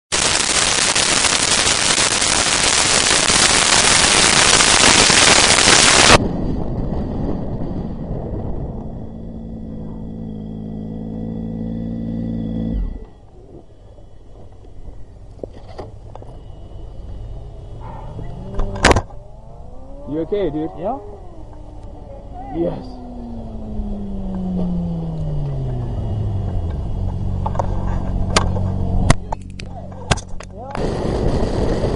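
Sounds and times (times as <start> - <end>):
road rumble: 0.1 - 31.9
motorcycle engine: 0.2 - 31.9
wind buffeting microphone: 4.8 - 31.9
vehicle engine idling: 21.0 - 30.7.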